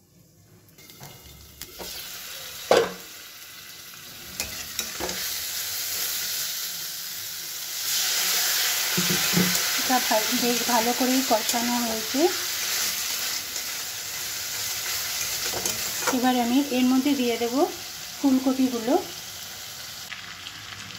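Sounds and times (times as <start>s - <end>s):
potatoes sizzling in pan: 0.0s - 20.9s
metal spatula scraping pan: 0.8s - 3.0s, 4.3s - 5.4s, 14.6s - 16.3s.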